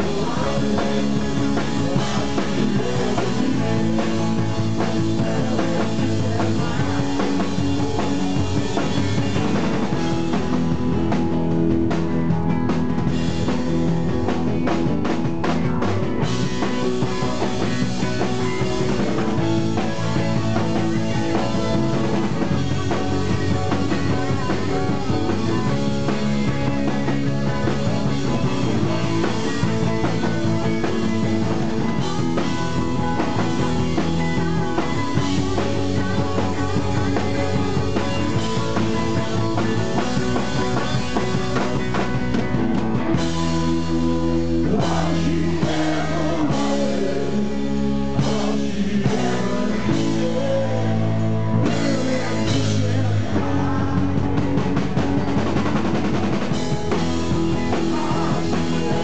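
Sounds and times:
bass guitar: 0.0s - 59.0s
drum kit: 0.0s - 59.0s
electric guitars: 0.0s - 59.0s.

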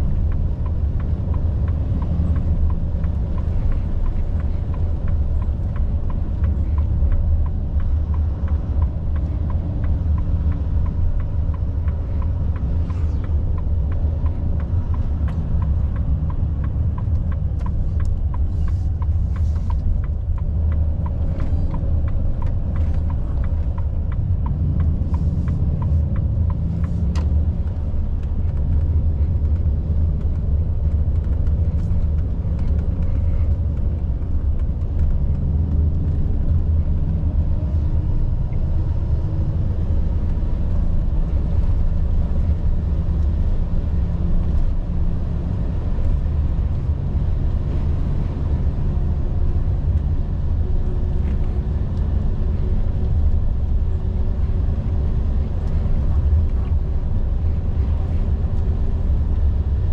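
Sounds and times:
diesel truck engine droning: 0.0s - 59.9s
light regular ticking: 0.2s - 38.0s.

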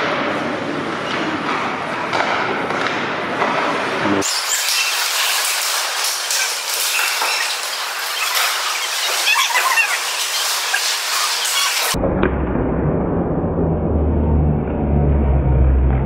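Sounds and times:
skate blades scraping ice: 2.8s - 12.0s.

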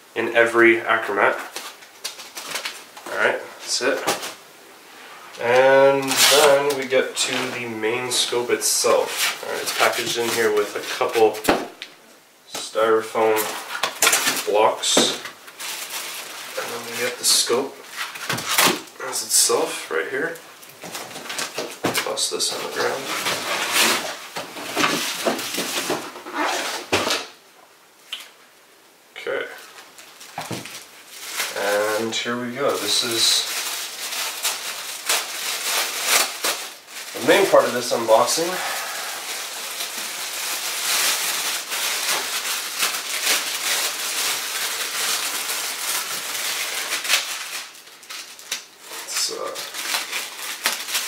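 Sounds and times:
plastic wrapping crinkling: 0.8s - 4.4s, 5.3s - 27.4s, 29.5s - 51.0s.

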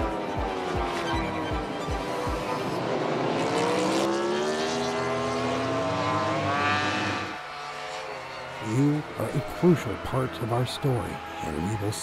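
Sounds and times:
motorcycle engine at high revs: 2.2s - 10.0s.

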